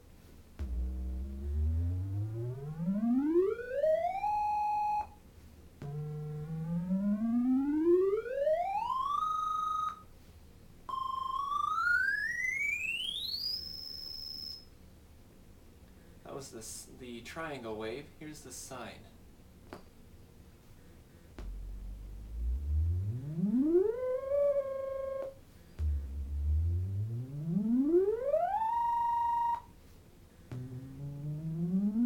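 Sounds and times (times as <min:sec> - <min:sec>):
synth rising pitch sweeps: 0:00.6 - 0:05.0, 0:05.8 - 0:09.4, 0:21.4 - 0:29.7, 0:30.5 - 0:32.0.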